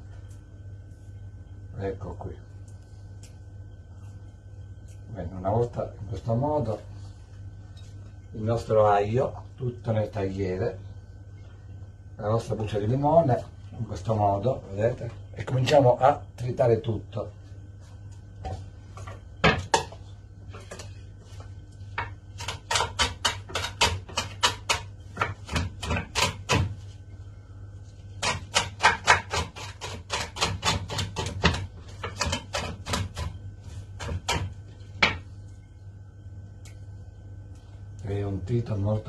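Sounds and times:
knife chopping on cutting board: 22.0 - 26.8, 28.2 - 33.4, 34.0 - 35.2.

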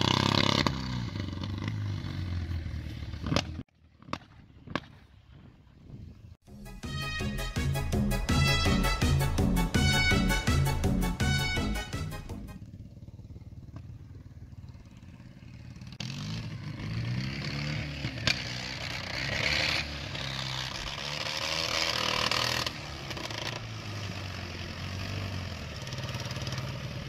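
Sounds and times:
small vehicle engine revving: 0.0 - 5.0, 8.6 - 27.0.

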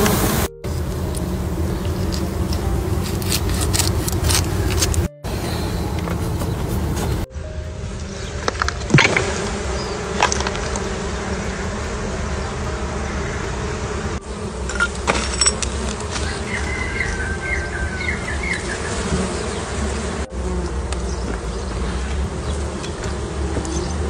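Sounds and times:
bees buzzing: 0.0 - 24.0.

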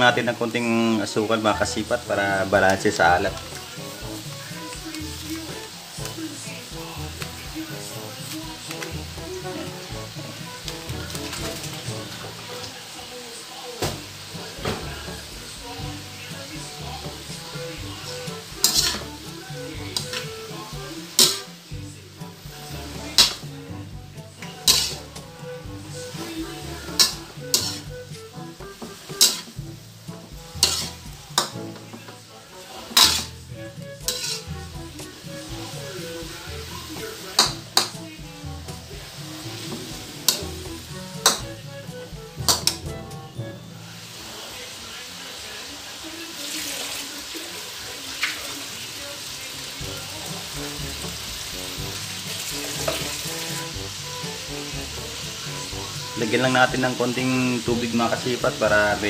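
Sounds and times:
frying sizzle: 0.0 - 59.0
metal spatula scraping wok: 14.3 - 44.5, 49.8 - 59.0.

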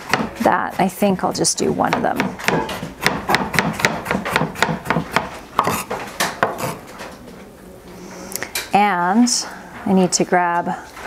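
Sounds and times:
knife chopping on wooden board: 0.0 - 0.9, 1.8 - 6.8.

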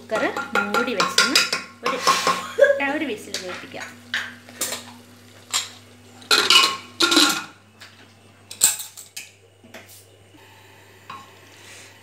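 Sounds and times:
metal lid clanks and scrapes: 0.6 - 2.5.

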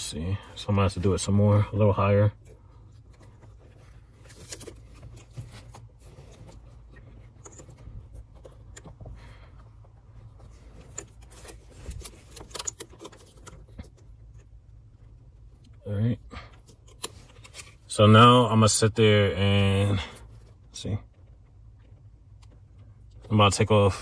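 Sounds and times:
wires rustling and clicking: 2.4 - 15.8.

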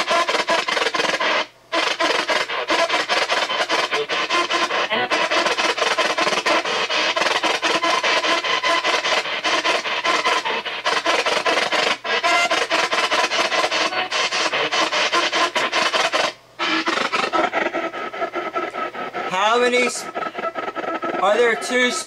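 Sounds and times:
chopping radio static: 0.0 - 22.0.

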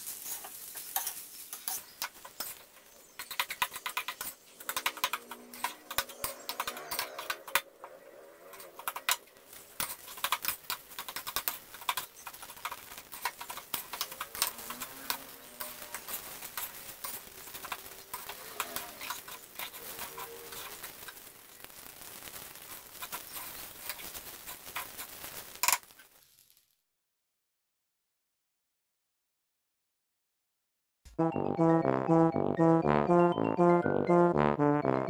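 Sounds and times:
metal spatula scraping a wok: 0.0 - 7.6, 8.3 - 21.2.

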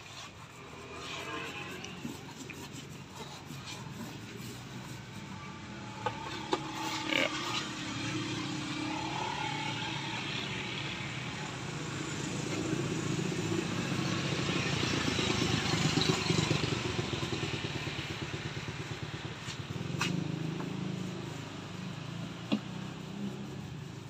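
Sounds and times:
vehicle engine passing by: 0.0 - 24.0.

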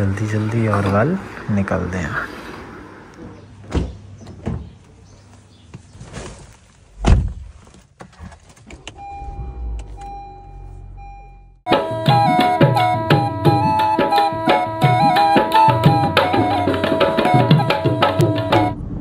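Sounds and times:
electronic chime tone: 9.0 - 11.6.

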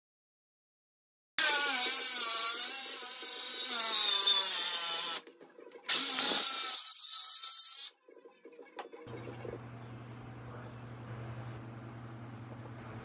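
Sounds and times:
circular saw cutting board: 1.4 - 5.3.

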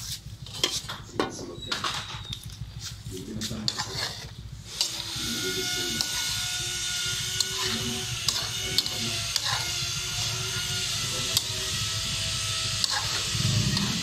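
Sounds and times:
metal spoon scraping a wok: 0.0 - 1.1, 1.7 - 14.0
chicken sizzling: 3.4 - 14.0.

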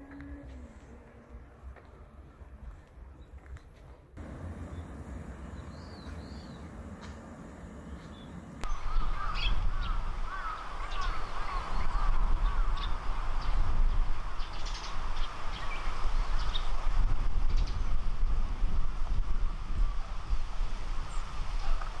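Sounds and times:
wind rumbling on microphone: 4.2 - 22.0
bird calling: 7.8 - 13.0.

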